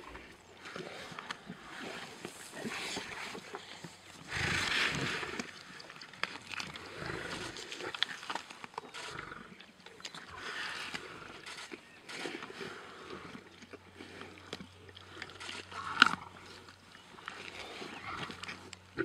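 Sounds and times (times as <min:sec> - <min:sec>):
lions growling: 0:06.5 - 0:13.4.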